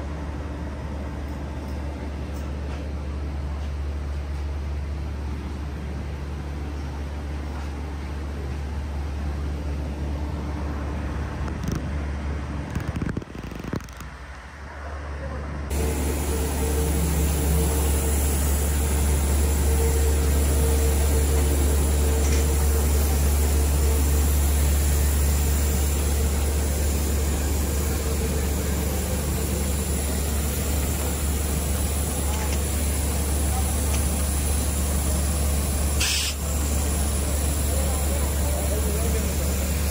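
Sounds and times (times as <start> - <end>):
engine rumble: 0.0 - 39.9
hiss of air noise: 15.7 - 39.9.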